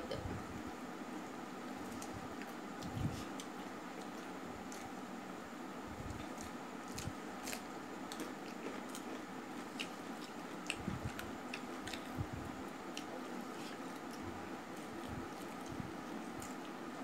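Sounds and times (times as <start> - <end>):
chewing and mouth smacks: 6.0 - 12.2, 12.9 - 16.8.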